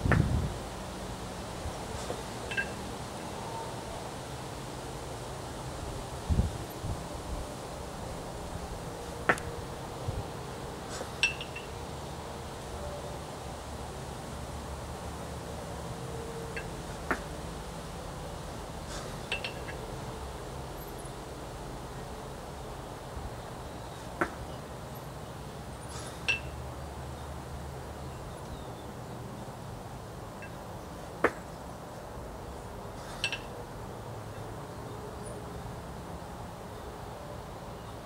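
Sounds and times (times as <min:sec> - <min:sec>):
background hiss: 0:00.0 - 0:38.0.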